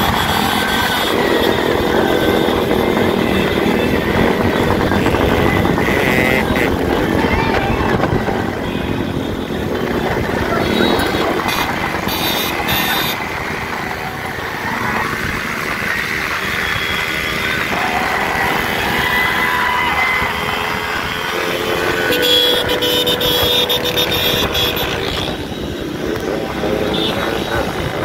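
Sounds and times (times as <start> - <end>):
motorcycle engines running: 0.0 - 28.0
men calling out: 4.7 - 9.2.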